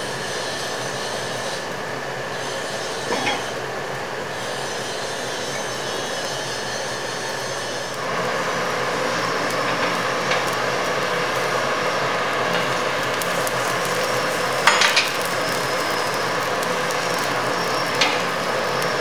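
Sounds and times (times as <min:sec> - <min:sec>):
forge fire roaring under air blast: 0:00.0 - 0:19.0.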